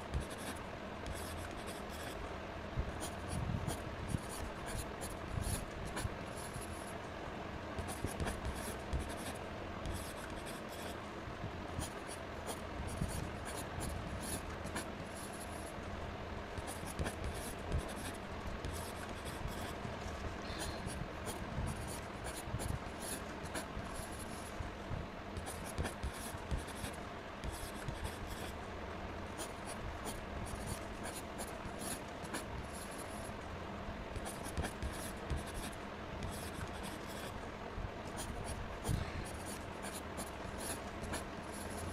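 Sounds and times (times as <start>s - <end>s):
pen scratching on paper: 0.1s - 2.2s, 7.8s - 11.0s, 16.6s - 19.8s, 21.2s - 24.4s, 25.4s - 28.5s, 34.2s - 37.3s, 38.2s - 41.9s.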